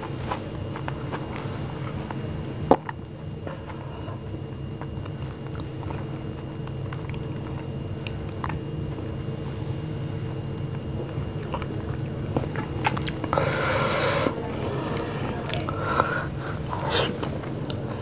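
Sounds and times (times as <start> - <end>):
steady low hum: 0.0 - 18.0
fingers squishing food: 11.3 - 13.4.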